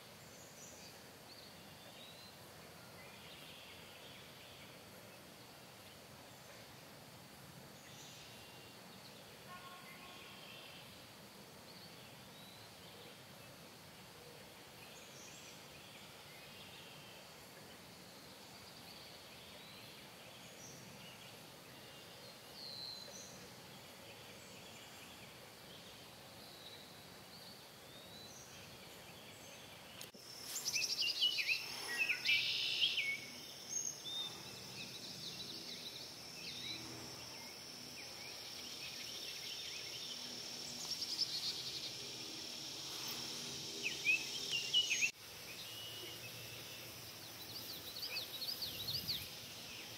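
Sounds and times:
high insect buzz: 0:30.1 - 0:49.9.

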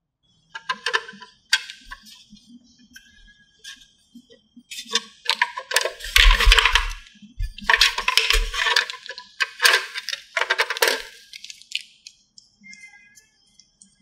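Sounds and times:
plastic toy cans clattering: 0:00.6 - 0:02.1, 0:04.8 - 0:11.9
soft knocks of cans dropping: 0:05.3 - 0:11.1.

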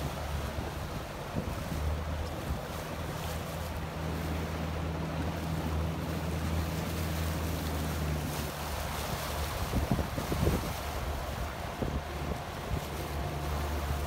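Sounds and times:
outboard motor humming: 0:00.0 - 0:14.0
water rushing: 0:00.0 - 0:14.0
wind noise: 0:08.8 - 0:14.0.

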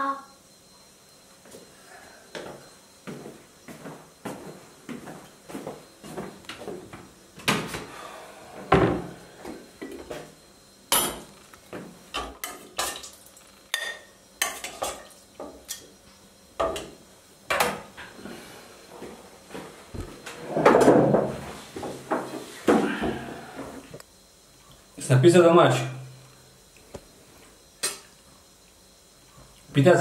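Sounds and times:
steel pots and lids clattering: 0:12.2 - 0:15.8.

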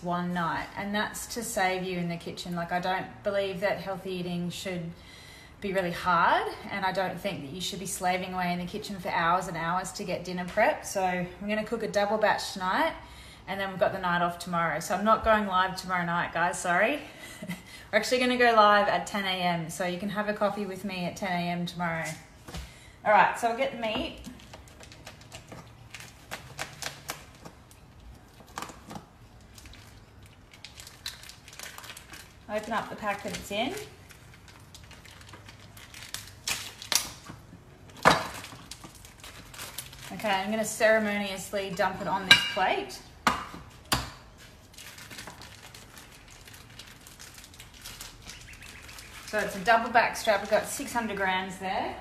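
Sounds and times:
plastic wrapping crinkling: 0:23.8 - 0:41.4, 0:43.6 - 0:51.3.

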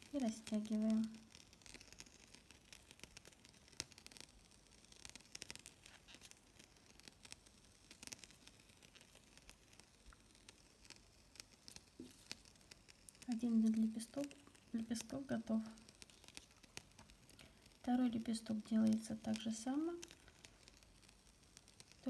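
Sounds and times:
ribbon rustling: 0:05.2 - 0:07.0.

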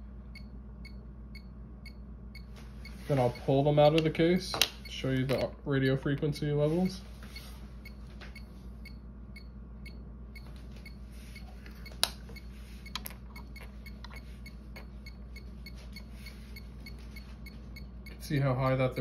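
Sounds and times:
faint regular ticking: 0:07.3 - 0:19.0.

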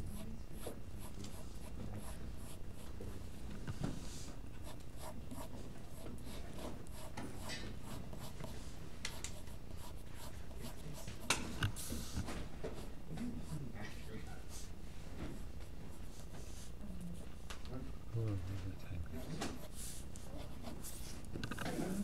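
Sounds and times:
pencil scratching on paper: 0:00.0 - 0:03.4, 0:04.0 - 0:14.7, 0:19.2 - 0:22.0.

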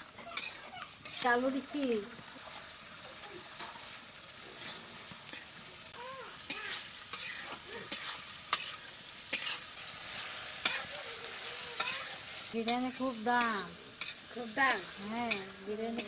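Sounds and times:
metal ladle scraping a pan: 0:00.0 - 0:05.7, 0:06.3 - 0:11.0
curry sizzling in a pan: 0:00.0 - 0:16.0.

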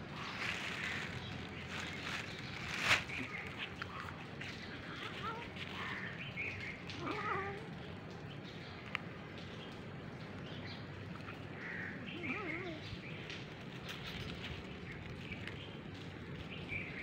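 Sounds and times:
cat meowing: 0:07.0 - 0:07.7.

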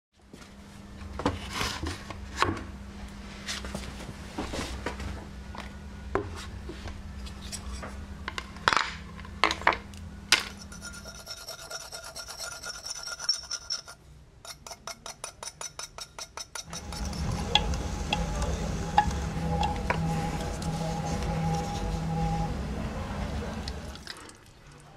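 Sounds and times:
metal point scratching glaze: 0:07.2 - 0:08.0, 0:10.5 - 0:24.0
metal tool shaving spinning clay: 0:10.5 - 0:22.8
potter's wheel rumbling: 0:16.6 - 0:24.0.

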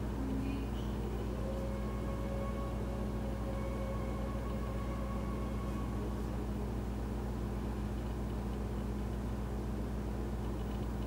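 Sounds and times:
faint high whine: 0:00.0 - 0:11.0
low mechanical hum: 0:00.0 - 0:11.0.

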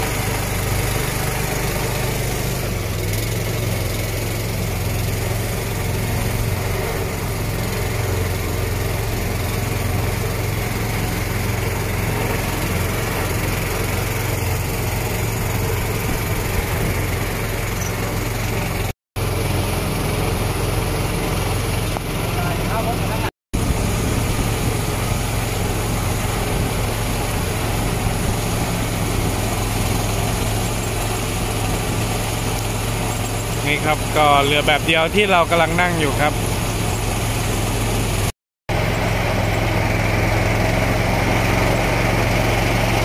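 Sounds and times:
boat engine droning: 0:00.0 - 0:43.0
wind: 0:00.0 - 0:43.0
water rushing: 0:20.2 - 0:38.3.

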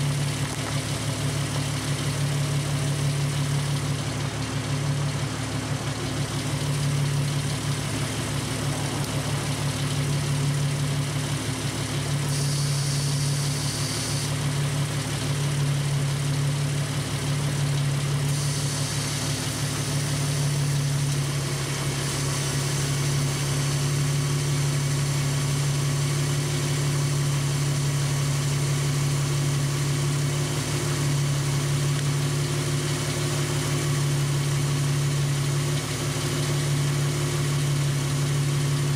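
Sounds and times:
engine idling: 0:00.0 - 0:38.9
air compressor filling tyre: 0:12.2 - 0:14.5, 0:18.2 - 0:21.0.

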